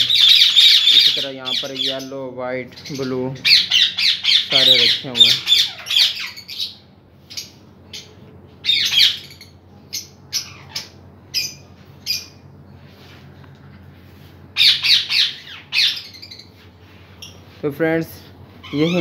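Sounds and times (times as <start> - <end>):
parrots squawking: 0.0 - 2.1, 2.7 - 12.4, 14.6 - 16.6, 18.6 - 19.0.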